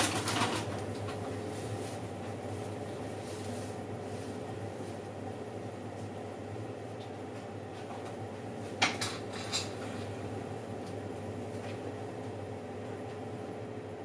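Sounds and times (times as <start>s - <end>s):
oven fan humming: 0.0s - 14.0s.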